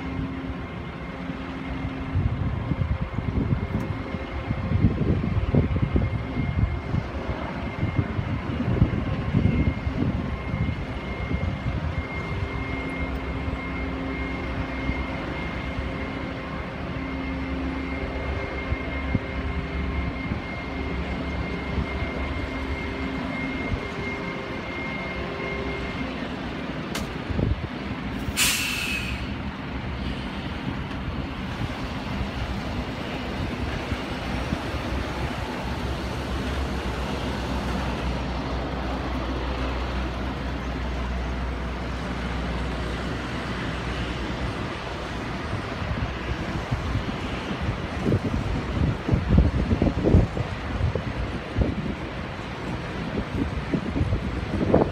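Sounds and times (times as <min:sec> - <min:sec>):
faint whining tones: 0:00.0 - 0:28.0
machinery rumble and hiss: 0:00.0 - 0:54.9
short sharp hiss of air: 0:28.2 - 0:29.4.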